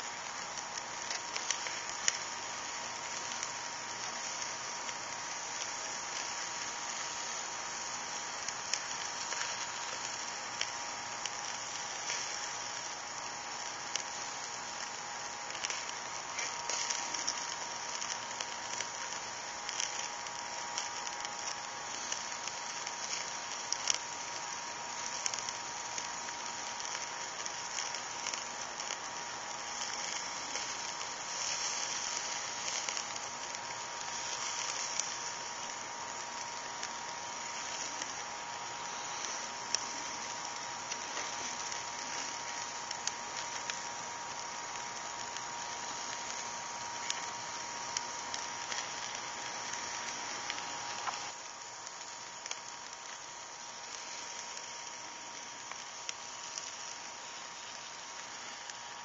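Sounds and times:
fat crackling and popping: 0.0 - 59.0
meat sizzling on a grill: 0.0 - 59.0.

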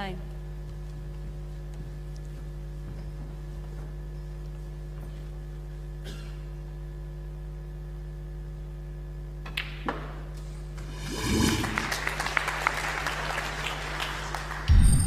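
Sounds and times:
electrical hum: 0.0 - 15.0
audience applause: 10.8 - 14.9.

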